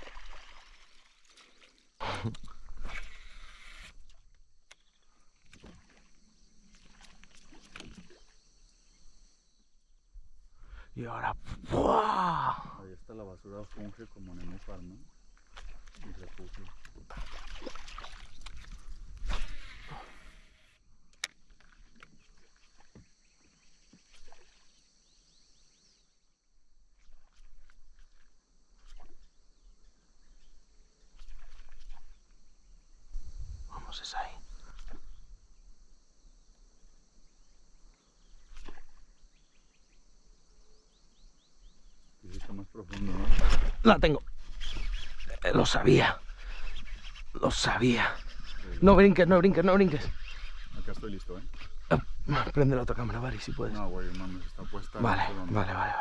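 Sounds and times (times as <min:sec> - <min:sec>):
faint water against boat hull: 0:00.0 - 0:11.7, 0:12.6 - 0:56.0
high-pitched insect drone: 0:12.9 - 0:20.8, 0:43.8 - 0:56.0
faint bird chirps: 0:27.1 - 0:42.8, 0:44.1 - 0:56.0.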